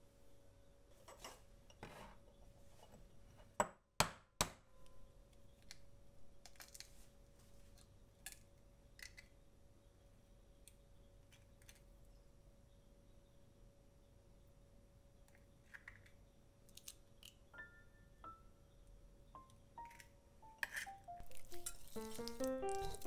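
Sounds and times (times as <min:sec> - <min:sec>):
eggshell crackling: 0:19.4 - 0:23.0.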